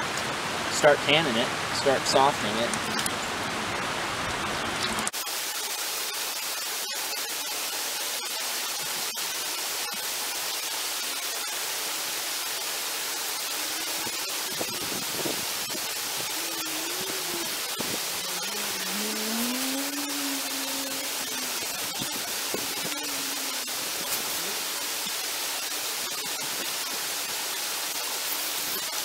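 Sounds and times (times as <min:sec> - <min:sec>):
steady hiss: 0:05.1 - 0:29.0
faint hum rising and falling: 0:13.4 - 0:25.1.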